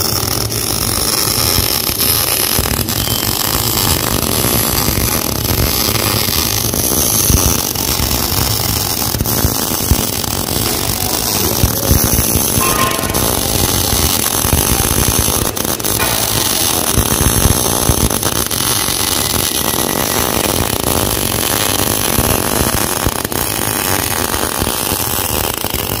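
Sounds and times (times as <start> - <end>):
machinery running: 4.8 - 19.0.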